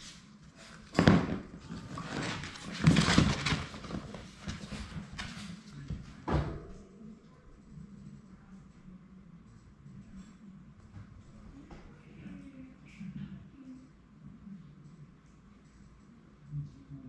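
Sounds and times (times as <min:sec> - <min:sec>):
puppies scuffling on wooden floor: 0:00.9 - 0:06.0.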